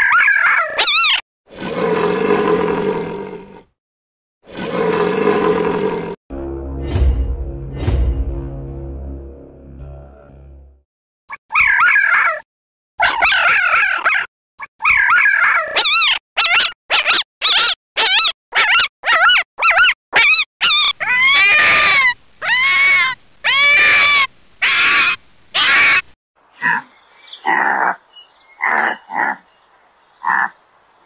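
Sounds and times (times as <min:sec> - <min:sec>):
jackal yelping and howling: 0:00.0 - 0:01.2, 0:11.5 - 0:12.4, 0:13.0 - 0:26.0, 0:26.6 - 0:28.0, 0:28.6 - 0:29.5.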